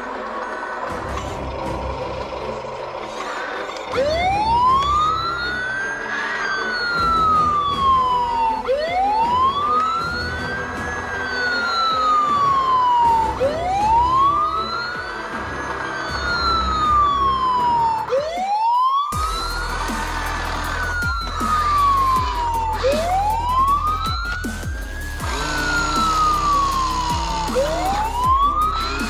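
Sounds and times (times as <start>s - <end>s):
electronic siren wail: 0.0s - 29.0s
steady electronic hum: 24.8s - 29.0s.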